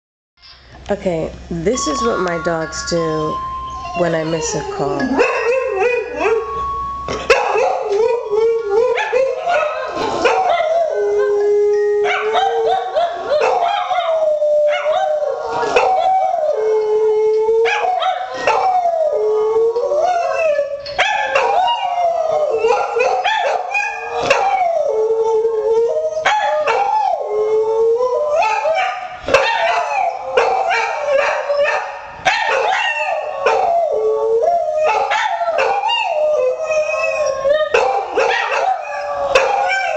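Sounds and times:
dogs howling: 0:03.5 - 0:39.9.

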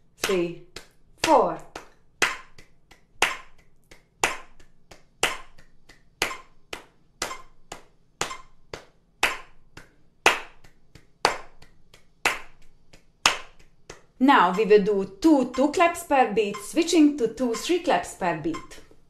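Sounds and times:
hand claps: 0:00.2 - 0:14.7
metronome beeping: 0:14.3 - 0:18.8.

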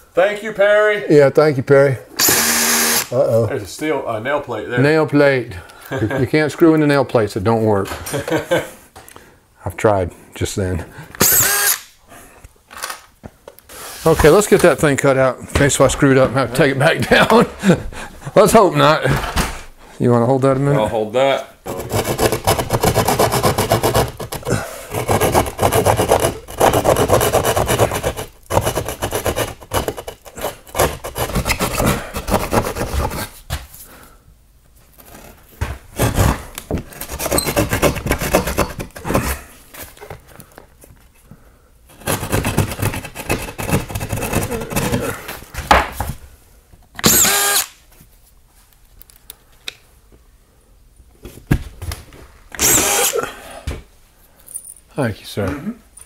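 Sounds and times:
screw gun driving screws: 0:02.2 - 0:03.1, 0:11.2 - 0:11.9, 0:47.0 - 0:47.8, 0:52.6 - 0:53.2
jab saw sawing drywall: 0:21.7 - 0:33.4, 0:36.0 - 0:39.3, 0:41.9 - 0:45.1.

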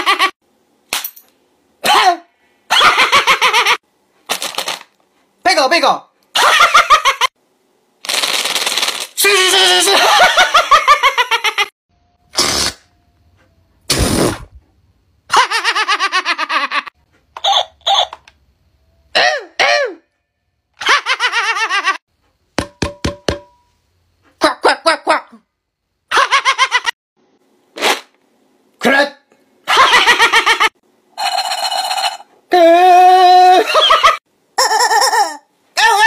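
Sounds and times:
man laughing loudly: 0:00.0 - 0:00.3, 0:09.8 - 0:11.7, 0:15.3 - 0:16.9, 0:29.7 - 0:30.7, 0:33.4 - 0:35.4.

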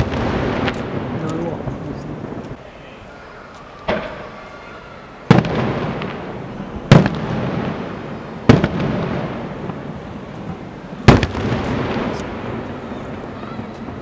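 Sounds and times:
firework shells bursting: 0:00.0 - 0:01.5
rolling echo: 0:00.0 - 0:14.0.

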